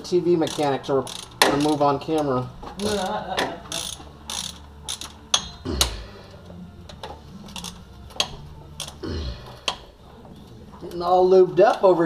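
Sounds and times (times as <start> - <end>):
socket ratchet clicking: 0.4 - 6.0, 7.0 - 9.0.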